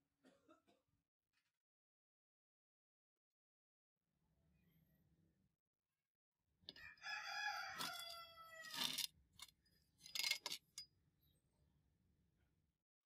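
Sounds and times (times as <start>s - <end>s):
rooster crowing: 6.8s - 8.9s.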